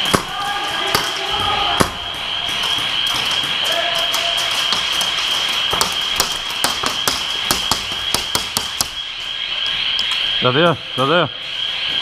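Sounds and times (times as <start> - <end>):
airsoft gunshots: 0.0 - 3.6.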